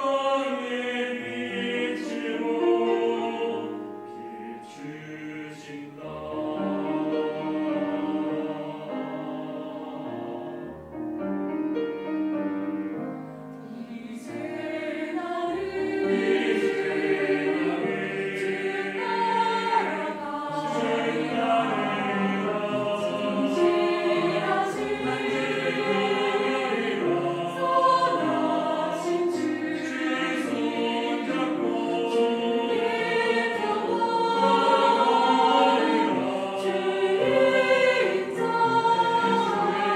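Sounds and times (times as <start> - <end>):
mixed choir singing a hymn: 0.0 - 10.9, 13.6 - 39.9
cellos: 0.0 - 39.9
piano: 0.0 - 39.9
violin: 13.6 - 39.9.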